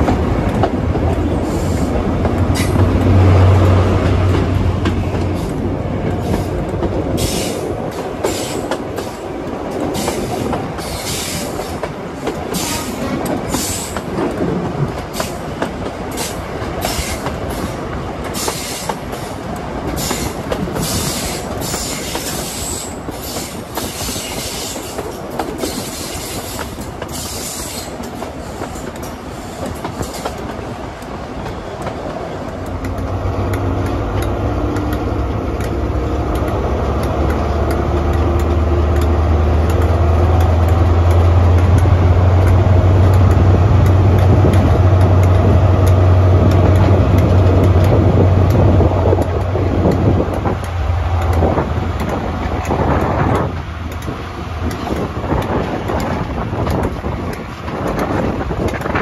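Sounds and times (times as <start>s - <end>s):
loud low train drone: 0.0s - 59.0s
train rolling noise: 0.0s - 59.0s.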